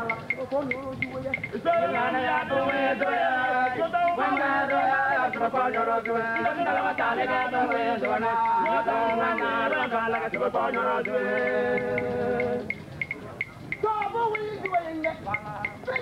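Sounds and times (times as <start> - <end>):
chant-like singing: 1.4 - 12.8.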